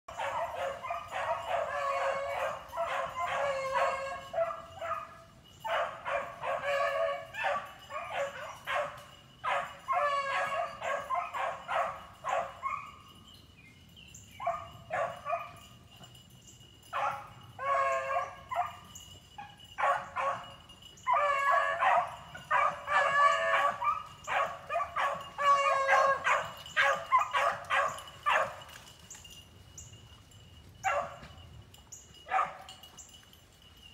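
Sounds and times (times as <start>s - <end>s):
beagles baying: 0.1s - 13.1s, 14.4s - 16.2s, 16.9s - 28.7s, 30.8s - 31.3s.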